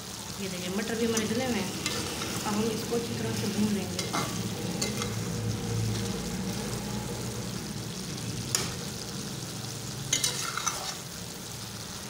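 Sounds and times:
food sizzling in a pan: 0:00.0 - 0:12.0
metal spatula stirring in a pan: 0:00.8 - 0:07.0, 0:08.4 - 0:09.1, 0:10.0 - 0:11.2.

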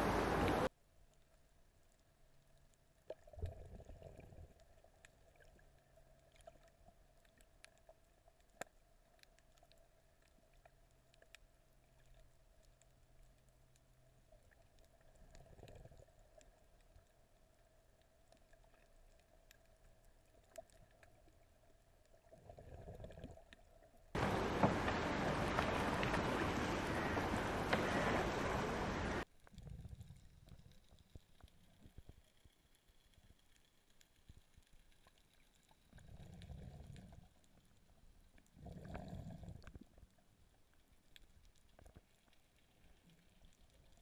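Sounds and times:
wind and waves: 0:00.0 - 0:00.7, 0:24.2 - 0:29.2
faint steady hum: 0:00.0 - 0:22.9, 0:24.1 - 0:34.9
soft water swishes: 0:00.0 - 0:44.0.

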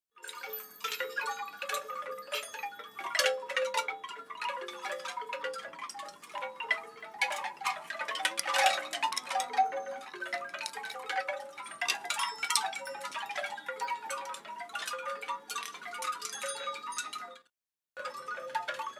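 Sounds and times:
chimes tinkling: 0:00.2 - 0:18.9.

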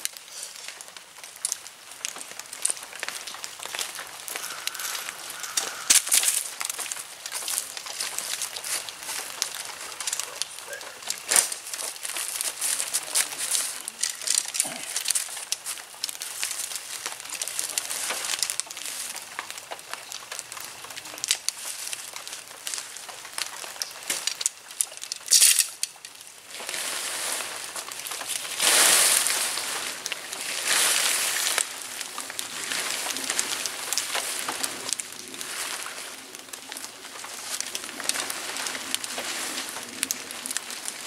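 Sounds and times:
tent poles clicking and rattling: 0:00.0 - 0:41.0
nylon tent fabric rustling: 0:04.8 - 0:19.2, 0:26.4 - 0:41.0.

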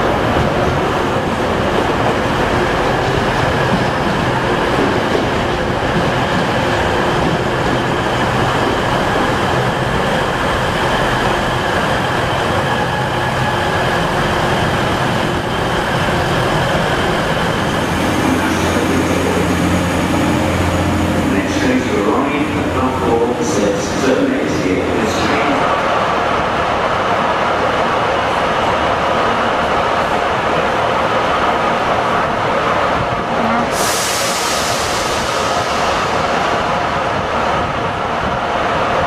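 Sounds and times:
diesel train rumbling past: 0:00.0 - 0:39.0.

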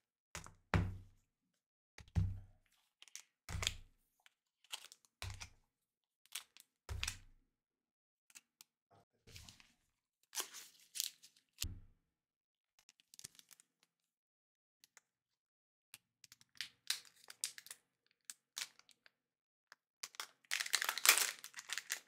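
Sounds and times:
foil wrappers crinkling: 0:20.5 - 0:22.0.

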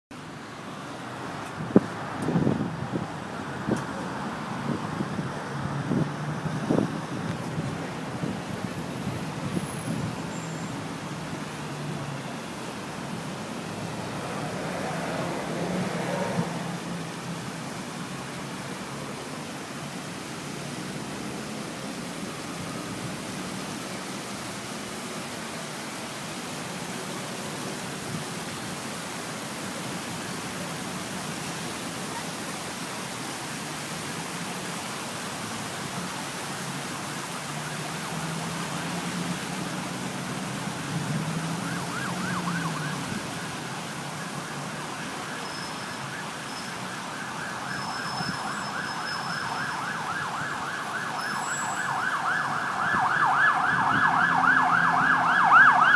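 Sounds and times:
city road traffic: 0:00.0 - 0:55.9
warbling siren: 0:41.4 - 0:55.9.

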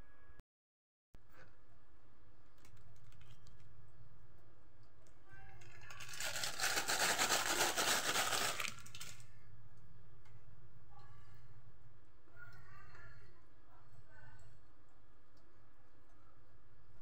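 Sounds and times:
low steady hum: 0:01.2 - 0:17.0
crinkling rustling noise: 0:02.5 - 0:03.8, 0:05.5 - 0:09.4.

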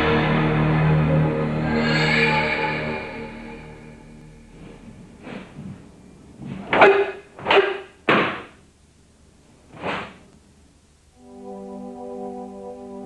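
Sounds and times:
feet striking the floor: 0:04.5 - 0:07.0.

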